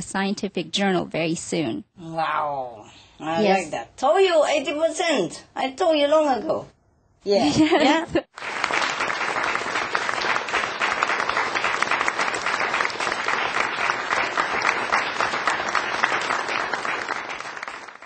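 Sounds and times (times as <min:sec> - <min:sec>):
audience applauding: 0:08.3 - 0:18.0.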